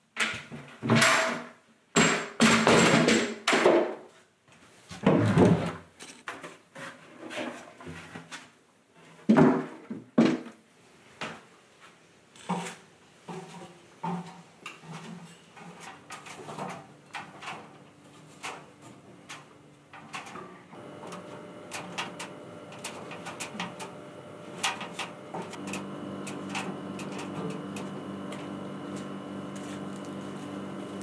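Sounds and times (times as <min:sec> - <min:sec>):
steady hum: 0:20.2 - 0:31.0.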